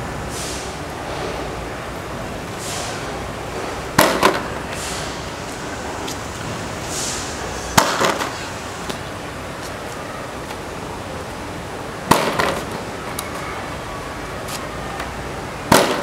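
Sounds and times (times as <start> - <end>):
board clattering: 4.0 - 4.5, 7.8 - 8.4, 12.1 - 12.8.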